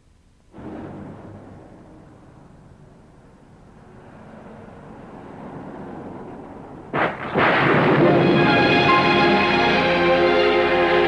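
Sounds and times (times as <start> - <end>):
loud noisy burst: 0.5 - 3.9, 6.9 - 11.0
low rumbling: 0.5 - 11.0.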